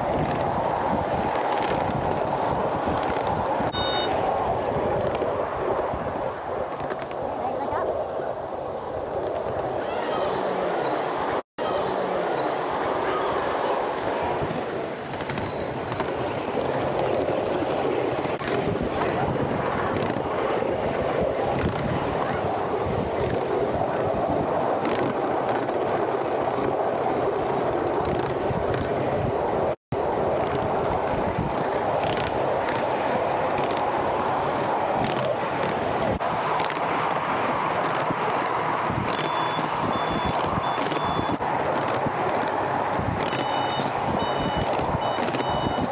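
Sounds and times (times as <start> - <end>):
miniature train rumbling: 0.0 - 45.9
wheels clicking on rails: 0.0 - 45.9
high repeated beeps: 3.7 - 4.1, 39.2 - 41.4, 43.3 - 45.9.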